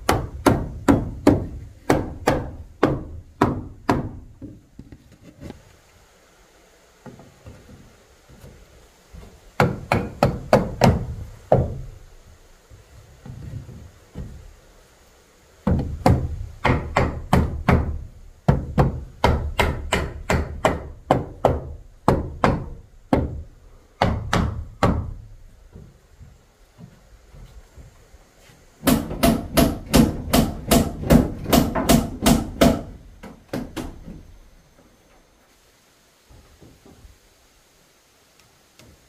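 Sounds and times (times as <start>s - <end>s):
hammer striking wood: 0.0s - 4.6s, 9.6s - 11.9s, 15.6s - 25.2s, 28.8s - 34.2s.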